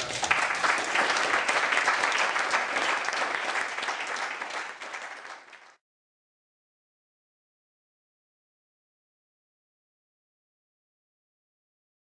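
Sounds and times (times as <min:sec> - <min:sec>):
audience applauding: 0:00.0 - 0:05.8.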